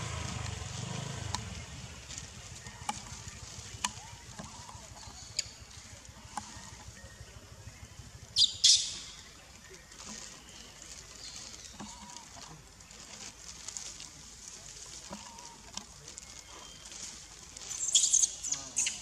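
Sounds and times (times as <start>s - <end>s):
outdoor ambient hiss: 0.0s - 19.0s
faint whistle-like calls: 8.4s - 9.3s.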